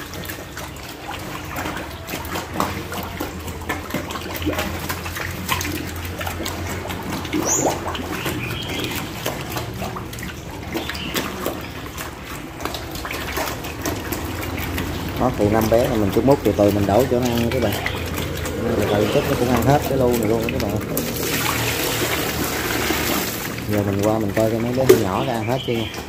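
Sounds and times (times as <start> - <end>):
piglets slurping and chomping: 0.0 - 26.0
low hum: 13.6 - 23.7.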